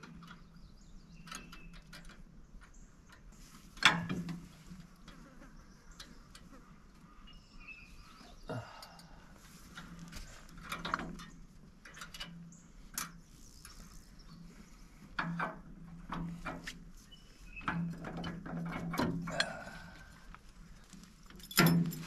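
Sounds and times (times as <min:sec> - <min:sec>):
metal clanks and knocks: 0:03.8 - 0:04.5, 0:17.6 - 0:19.7, 0:21.4 - 0:22.0.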